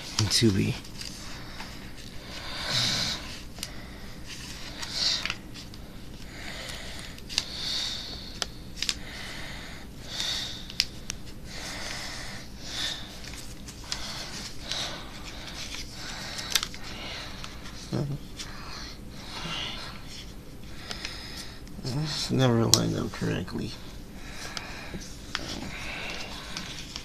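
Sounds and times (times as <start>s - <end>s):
breathing through nose: 6.2s - 21.6s
paper crinkling: 12.8s - 18.8s.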